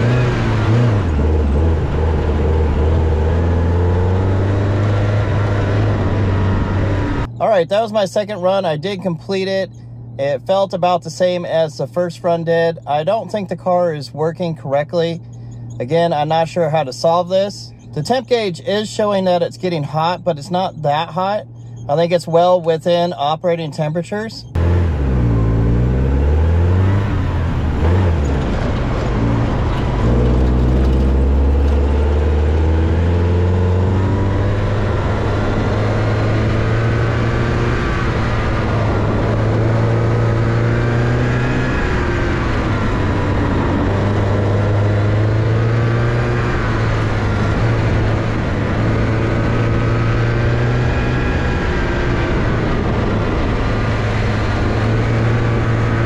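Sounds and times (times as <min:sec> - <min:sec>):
car engine revving: 0:00.0 - 0:13.4, 0:14.7 - 0:56.0.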